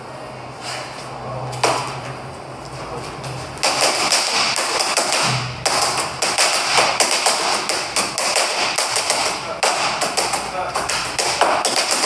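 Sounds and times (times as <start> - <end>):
boxing gloves hitting focus mitts: 3.6 - 12.0.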